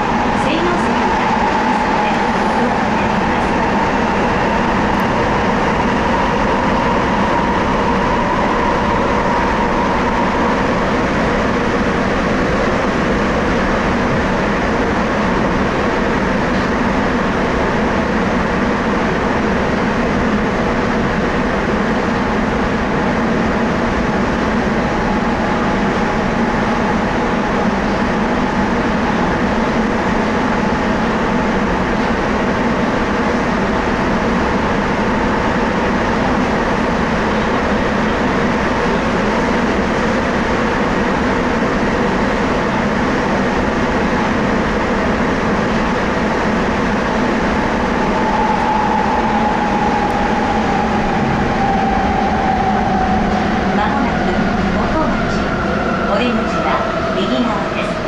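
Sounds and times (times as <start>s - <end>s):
subway train rumbling in tunnel: 0.0s - 58.0s
high whine: 46.6s - 56.6s.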